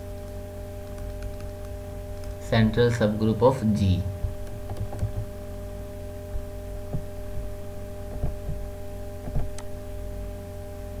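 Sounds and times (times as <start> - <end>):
electrical hum: 0.0 - 11.0
faint low knocks: 8.1 - 8.6.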